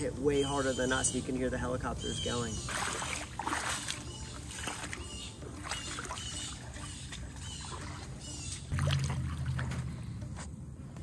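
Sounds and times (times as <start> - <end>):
sloshing floodwater: 2.2 - 10.2.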